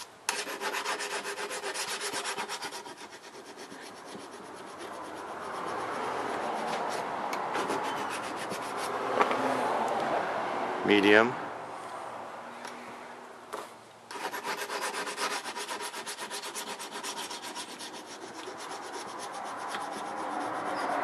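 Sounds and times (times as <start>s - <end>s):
hone scraping steel blade: 0.0s - 9.0s, 14.1s - 21.0s.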